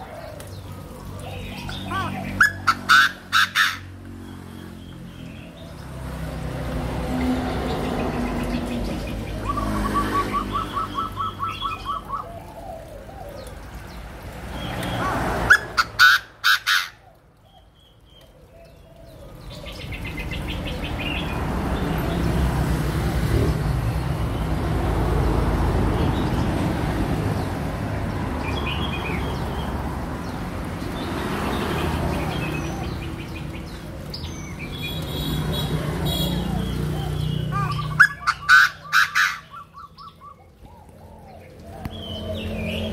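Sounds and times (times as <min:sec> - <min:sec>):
cage birds chirping: 0:00.0 - 0:42.9
bird calling harsh repeated notes: 0:01.8 - 0:04.0, 0:09.3 - 0:13.0, 0:15.5 - 0:17.2, 0:35.0 - 0:40.4.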